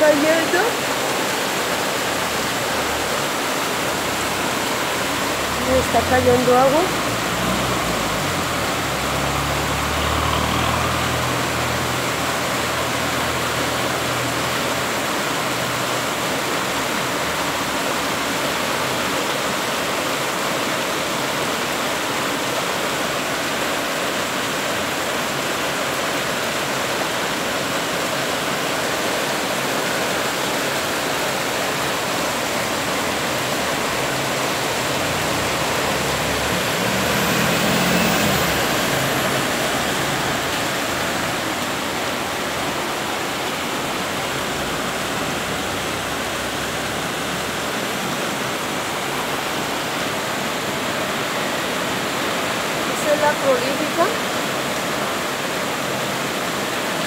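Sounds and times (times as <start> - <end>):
heavy rain pouring: 0.0 - 57.0.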